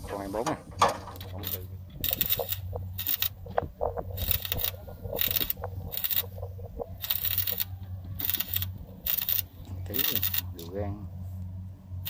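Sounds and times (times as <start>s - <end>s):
steady low hum: 0.0s - 12.0s
electric arc welding crackling: 1.2s - 10.6s.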